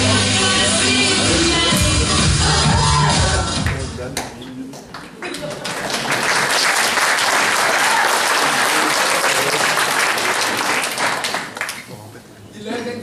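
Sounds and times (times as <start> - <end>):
audience applauding: 4.9 - 11.9.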